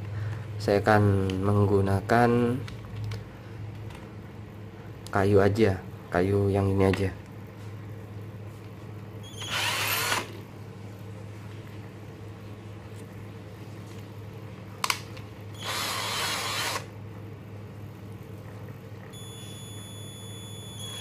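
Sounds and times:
cordless drill spinning: 0:09.3 - 0:10.4, 0:15.6 - 0:16.9.

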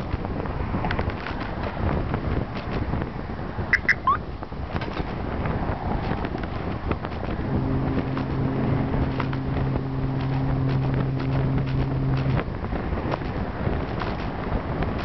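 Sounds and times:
wind rushing over microphone: 0:00.0 - 0:15.0
foghorn blast: 0:07.4 - 0:12.5.

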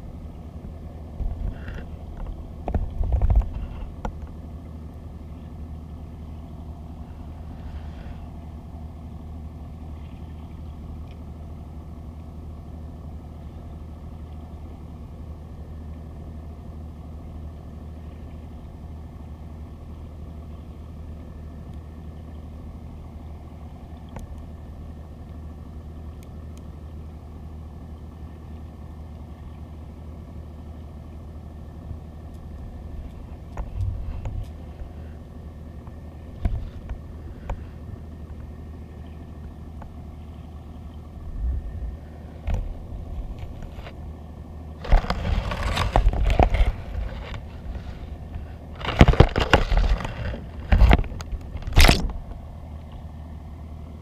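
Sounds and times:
underwater low hum: 0:00.0 - 0:54.0.

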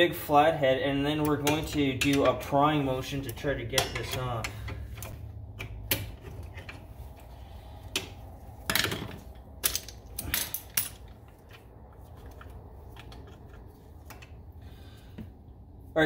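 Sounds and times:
metal tools clinking and scraping: 0:01.1 - 0:14.5.

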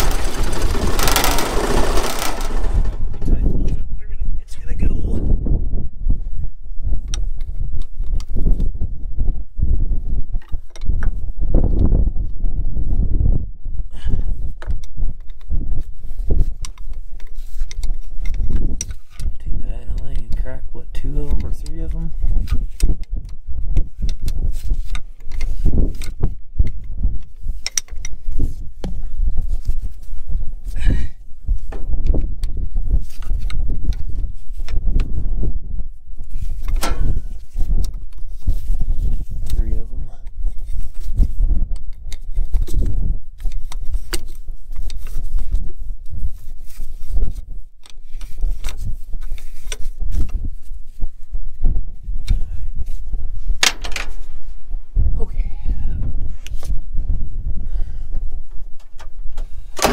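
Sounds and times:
steady low rumble: 0:00.0 - 0:10.2, 0:28.2 - 0:41.8, 0:49.9 - 0:59.9.

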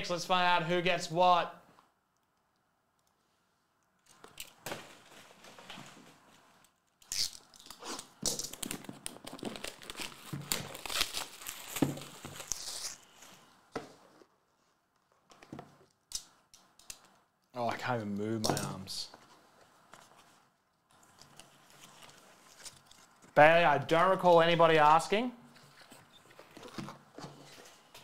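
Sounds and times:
shrink wrap crackling: 0:06.4 - 0:13.3.

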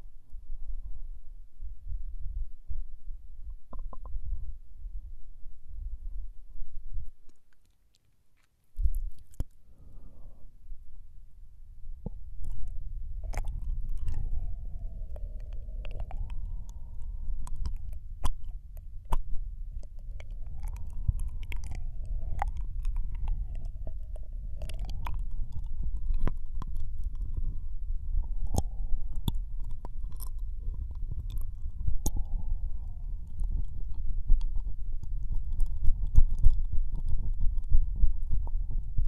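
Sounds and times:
steady low rumble: 0:00.0 - 0:07.5, 0:08.8 - 0:39.0
wet mouth clicks and smacks: 0:08.8 - 0:09.6, 0:12.1 - 0:27.6, 0:28.2 - 0:38.7.

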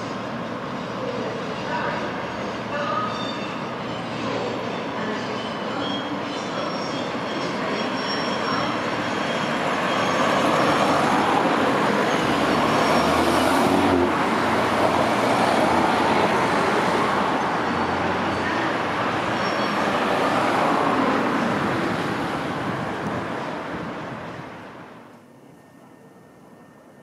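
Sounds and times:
diesel train crossing a bridge: 0:00.0 - 0:27.0
cars driving past: 0:09.4 - 0:24.9.

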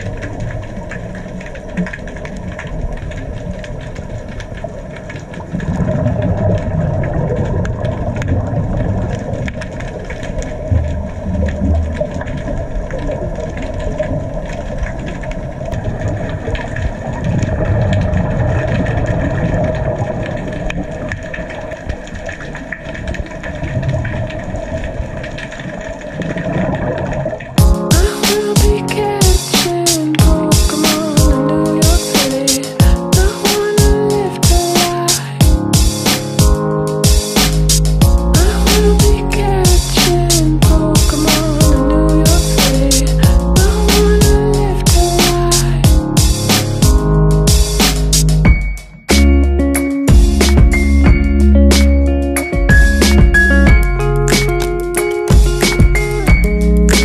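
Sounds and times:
crackle of small clicks: 0:00.0 - 0:27.6, 0:54.2 - 0:55.8
engine-like hum underwater: 0:00.0 - 0:27.6
muffled low rumbling: 0:38.0 - 0:45.1.

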